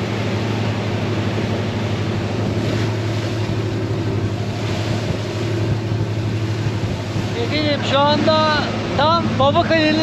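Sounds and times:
boat engine humming: 0:00.0 - 0:10.0
water rushing around hull: 0:00.0 - 0:10.0
wind: 0:00.0 - 0:10.0.

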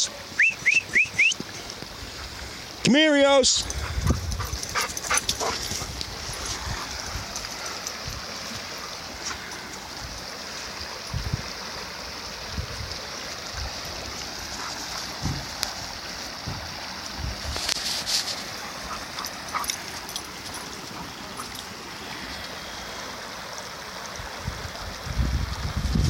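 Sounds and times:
creek rushing over stones: 0:00.0 - 0:26.0.

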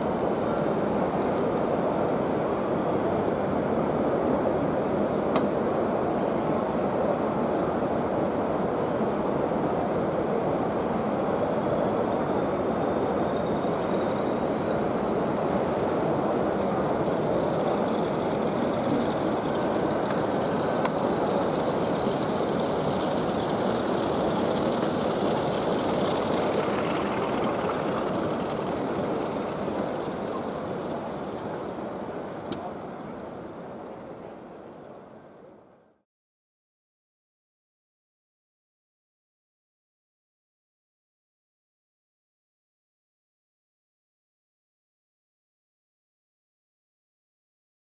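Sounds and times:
model train wheels rumbling on rails: 0:00.0 - 0:35.6
thin high whine: 0:11.6 - 0:32.6.

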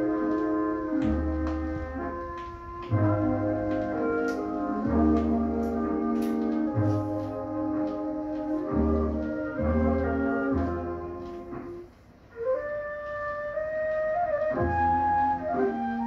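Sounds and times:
solo flute melody: 0:00.0 - 0:16.0.

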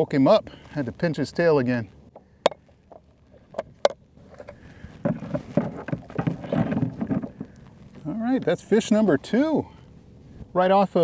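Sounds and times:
gear knocking in plastic kayak: 0:03.6 - 0:07.7.

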